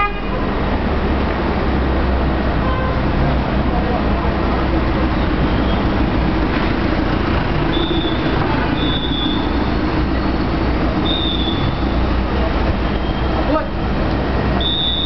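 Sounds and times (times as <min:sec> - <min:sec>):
traffic engines and tyres: 0:00.0 - 0:15.0
short high squeals: 0:07.7 - 0:10.4, 0:14.6 - 0:15.0.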